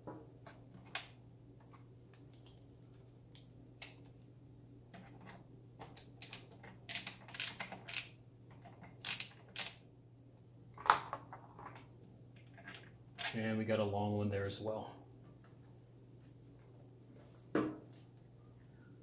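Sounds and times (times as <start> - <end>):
screwdriver clicks and ticks: 6.0 - 8.2, 9.0 - 9.8.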